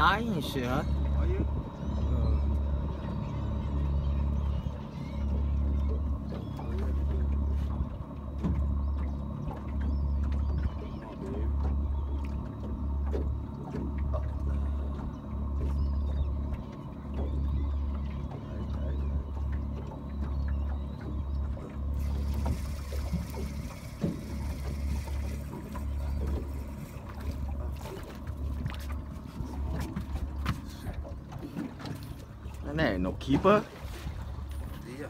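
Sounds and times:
water lapping around boat: 0.0s - 35.0s.

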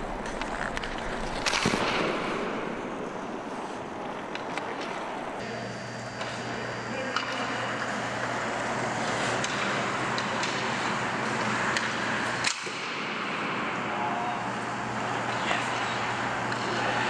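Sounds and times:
skates scraping on ice: 0.0s - 5.4s, 7.3s - 12.8s
steady low hum: 0.0s - 17.0s
sharp crack of hockey shot: 1.4s - 2.8s, 11.8s - 13.2s
stick tapping puck: 9.4s - 12.9s.

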